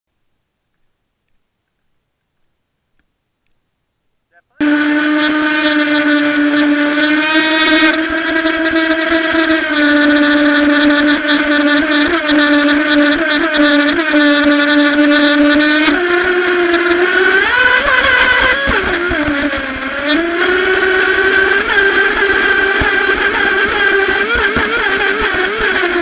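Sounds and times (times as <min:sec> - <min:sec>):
electric motor whining: 0:04.6 - 0:26.0.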